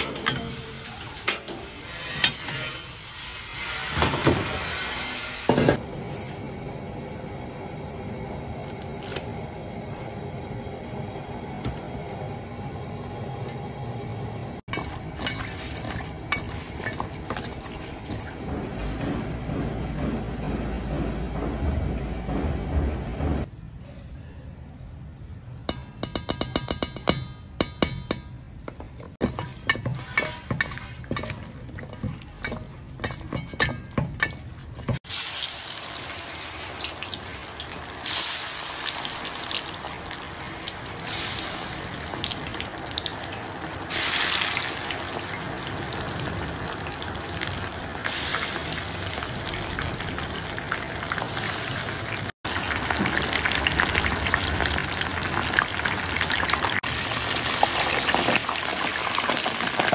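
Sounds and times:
fish deep-frying in oil: 2.9 - 18.4, 29.2 - 59.9.

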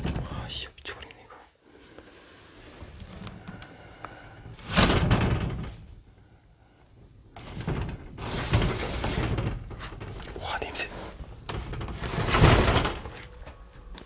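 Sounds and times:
wooden sliding door rolling: 4.4 - 6.1, 7.0 - 10.3, 11.1 - 13.8.

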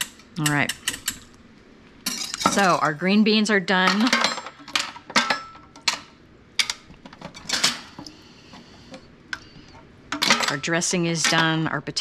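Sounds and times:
dishes and utensils clinking: 2.0 - 2.9, 3.8 - 8.1, 10.1 - 11.7.

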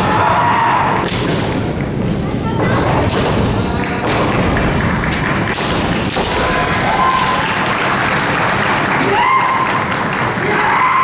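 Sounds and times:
bamboo swords striking: 0.8 - 1.7, 5.5 - 6.9.

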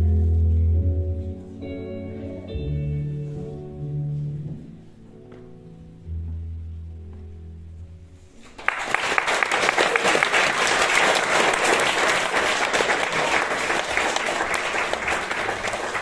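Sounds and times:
audience clapping: 8.4 - 16.0.

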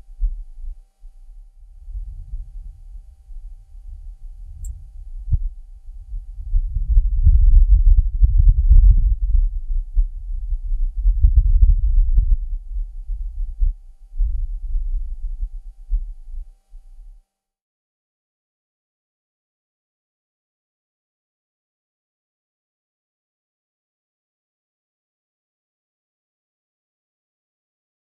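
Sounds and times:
gusty wind rumble on microphone: 0.0 - 17.0.

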